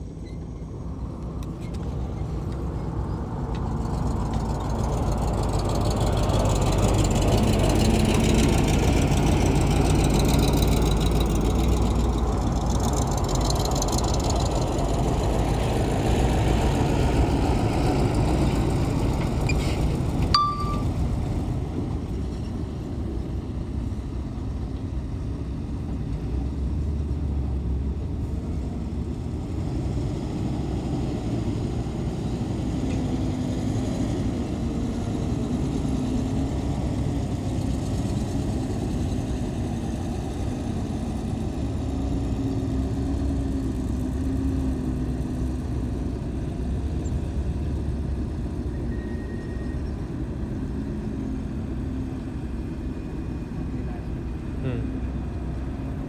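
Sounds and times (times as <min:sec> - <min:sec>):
diesel engine of earthmover droning: 0:00.0 - 0:56.0.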